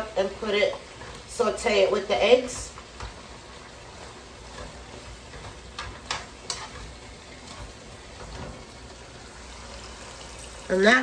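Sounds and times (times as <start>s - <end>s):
vegetables sizzling in oil: 0.0s - 11.0s
utensil clicking against pan: 4.4s - 8.6s.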